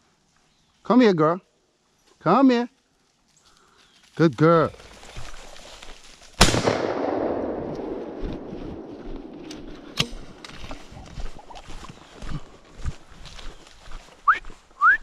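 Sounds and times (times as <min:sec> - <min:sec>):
shotgun shot echoing: 0:06.4 - 0:10.7.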